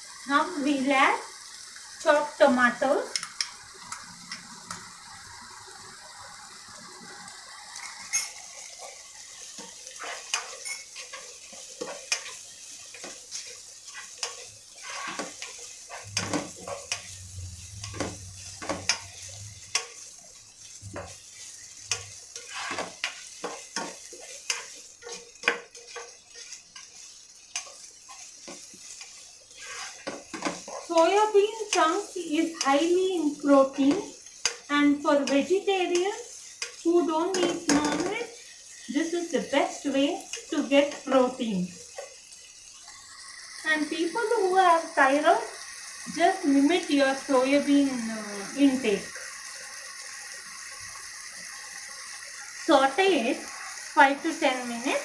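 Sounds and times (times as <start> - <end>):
vegetables sizzling in oil: 0.0 - 55.0
spoon scraping and knocking pan: 7.8 - 38.9.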